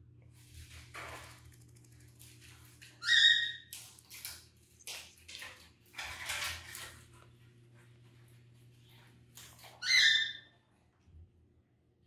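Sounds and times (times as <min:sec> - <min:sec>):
macaw squawk: 0:03.0 - 0:03.7, 0:09.8 - 0:10.5.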